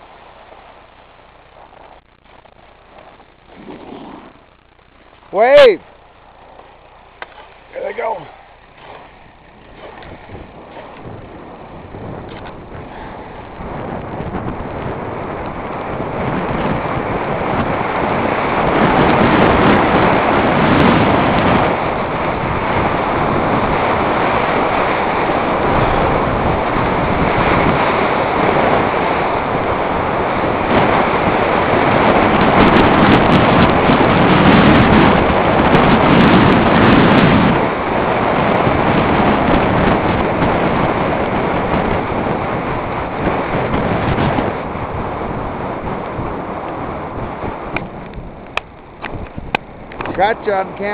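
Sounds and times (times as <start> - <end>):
skis sliding on snow: 0.0 - 5.6, 6.3 - 15.0
wind rushing over microphone: 0.0 - 50.9.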